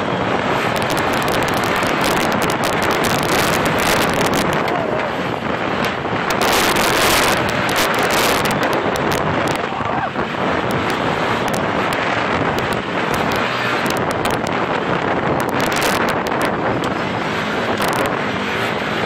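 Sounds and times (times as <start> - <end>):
off-road vehicle engine running: 0.0 - 19.0
tyres on rough dirt track: 0.0 - 19.0
wind buffeting microphone: 0.0 - 19.0.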